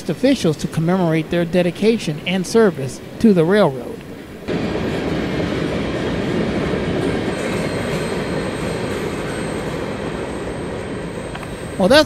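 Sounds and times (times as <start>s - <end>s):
freight train wheels rattling on track: 4.5s - 12.0s.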